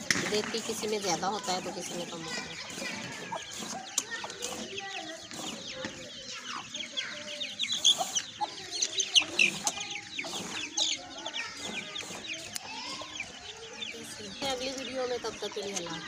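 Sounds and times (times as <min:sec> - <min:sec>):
chickens clucking: 0:00.0 - 0:16.0
high chirps: 0:00.0 - 0:16.0.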